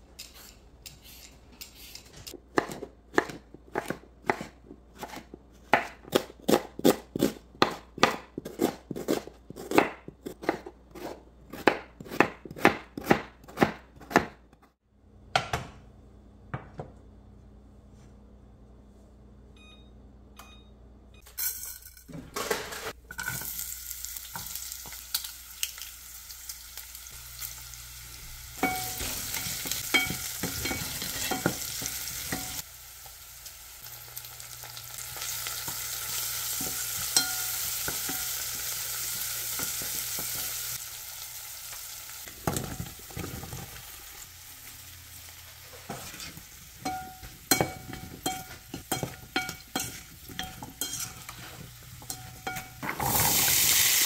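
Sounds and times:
onions sizzling in hot oil: 23.2s - 54.0s.

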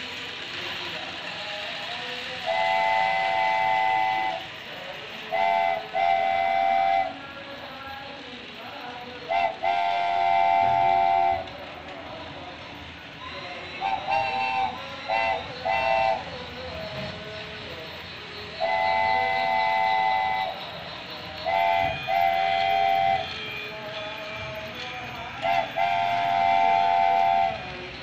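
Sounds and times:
model train running noise: 0.0s - 28.0s
model train whistle toots: 2.4s - 4.5s, 5.3s - 7.3s, 9.2s - 11.6s, 13.2s - 16.9s, 18.2s - 23.8s, 24.8s - 27.8s.

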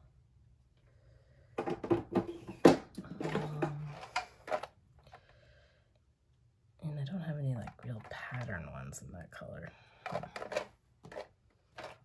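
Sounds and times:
tape rolls clattering in plastic box: 1.6s - 4.7s, 10.0s - 12.0s.

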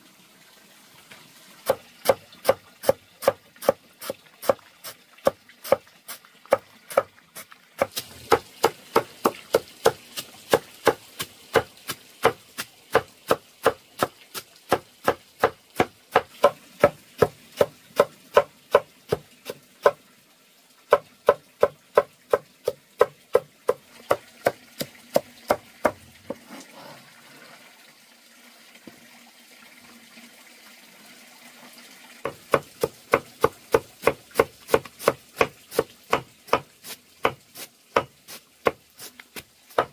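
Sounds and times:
machete chopping on wooden block: 32.3s - 37.4s, 39.4s - 39.9s.

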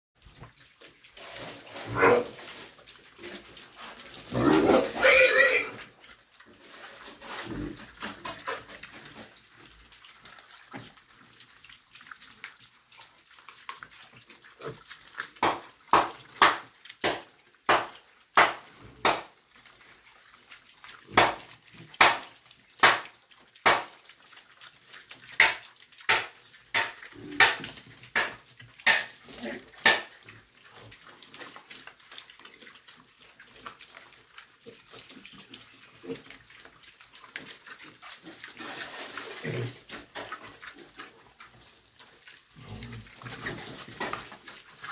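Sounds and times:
piglets smacking and slurping feed: 0.2s - 44.9s
pig grunt: 4.2s - 5.9s, 7.3s - 7.9s.

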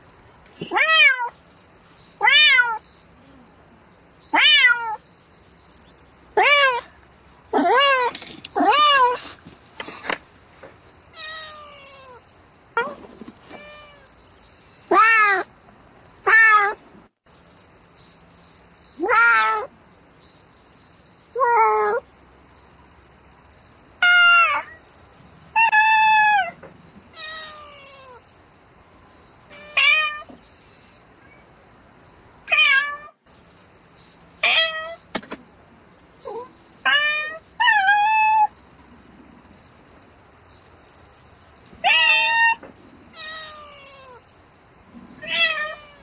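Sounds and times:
cat meowing: 0.7s - 1.3s, 2.2s - 2.8s, 4.3s - 5.0s, 11.2s - 12.2s, 24.0s - 24.8s, 25.5s - 28.2s, 29.5s - 30.3s, 32.5s - 33.2s, 34.4s - 35.0s, 36.2s - 38.5s, 41.8s - 44.2s, 45.2s - 46.0s.

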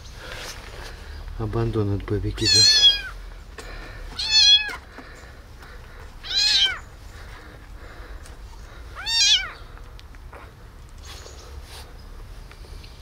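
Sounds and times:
kitten meowing: 2.4s - 3.1s, 4.2s - 4.8s, 6.2s - 6.9s, 9.0s - 9.7s.

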